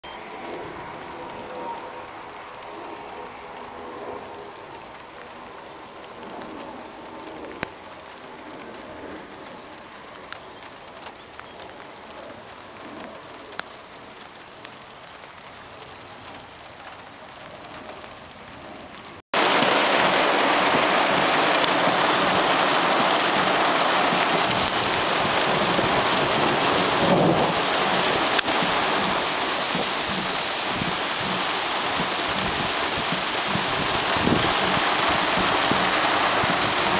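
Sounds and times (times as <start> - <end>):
heavy rain pouring: 0.0 - 36.9
thunder rumble: 19.4 - 36.9.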